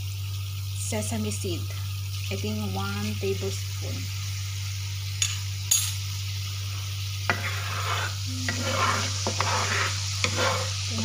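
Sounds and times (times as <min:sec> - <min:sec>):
sauce bubbling and sizzling in pan: 0:00.0 - 0:11.0
spatula scraping through sauce: 0:07.3 - 0:11.0.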